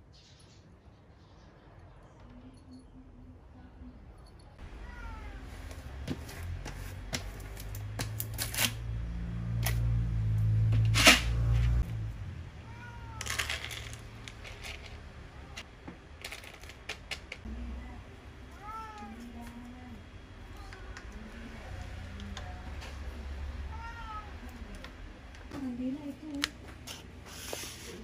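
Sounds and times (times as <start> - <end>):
cat meowing: 4.6 - 5.7, 12.6 - 13.4, 18.6 - 19.3, 23.7 - 24.5.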